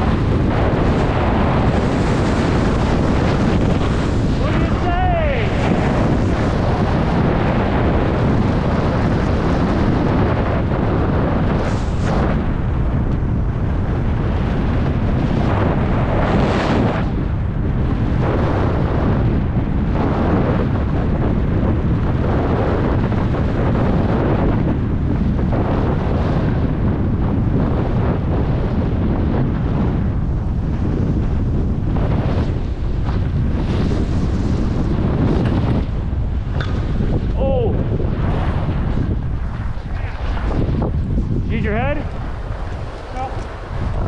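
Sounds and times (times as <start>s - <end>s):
wind rushing over microphone: 0.0s - 44.0s
skis sliding on snow: 33.1s - 35.6s.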